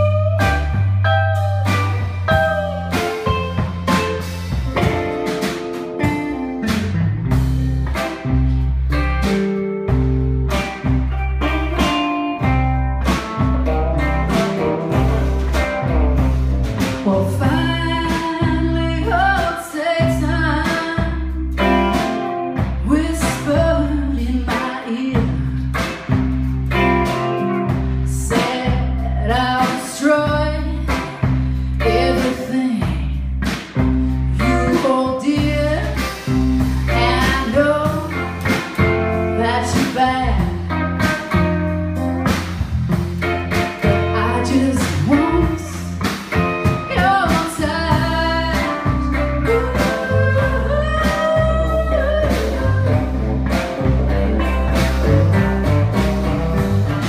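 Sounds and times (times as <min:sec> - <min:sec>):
woman singing lead: 0:00.0 - 0:04.1, 0:16.9 - 0:25.9, 0:28.0 - 0:41.6, 0:43.8 - 0:53.4
drum kit: 0:00.0 - 0:57.0
electric guitars: 0:00.0 - 0:57.0.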